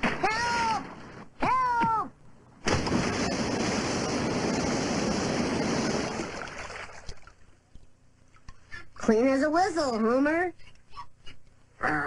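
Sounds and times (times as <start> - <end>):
cartoon water gushing: 2.7 - 7.3.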